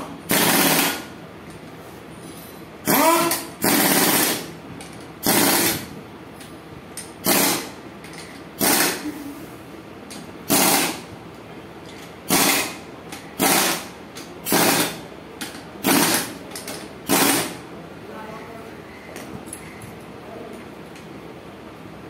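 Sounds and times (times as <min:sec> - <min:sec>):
pneumatic impact wrench bursts: 0:00.3 - 0:01.2, 0:02.8 - 0:04.6, 0:05.2 - 0:06.0, 0:07.0 - 0:09.2, 0:10.4 - 0:11.1, 0:12.0 - 0:15.0, 0:15.8 - 0:17.6.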